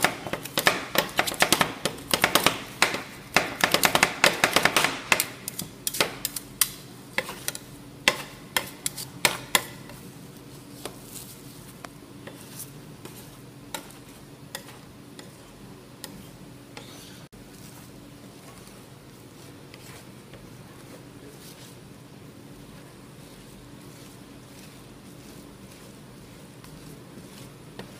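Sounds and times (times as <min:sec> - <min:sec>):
metal spatula chopping and scraping: 0:00.0 - 0:10.0, 0:12.2 - 0:21.8.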